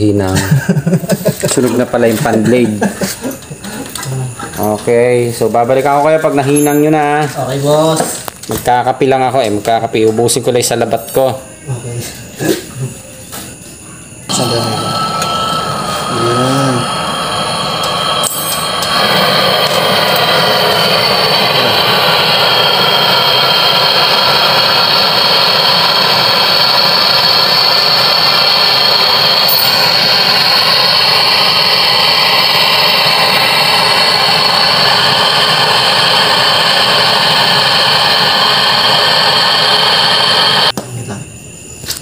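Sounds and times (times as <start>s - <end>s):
brazing torch hissing: 14.2s - 40.8s.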